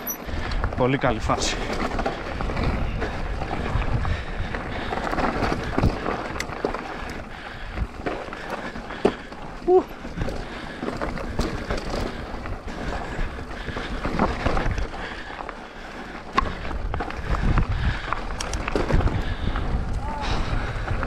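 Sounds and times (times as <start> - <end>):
bike rattling and knocking: 0.0 - 21.0
tyres crunching over gravel: 0.0 - 21.0
wind buffeting microphone: 0.0 - 21.0.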